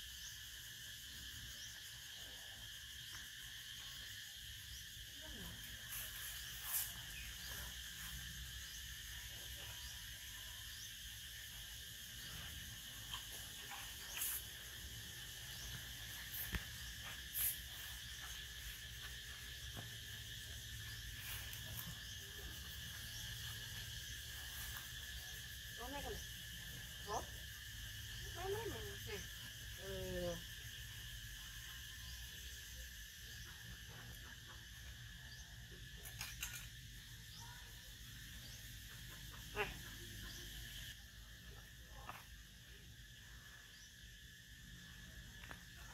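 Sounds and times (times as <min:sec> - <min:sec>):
insects droning: 0:00.0 - 0:45.9
sharp high hiss: 0:12.2 - 0:22.2.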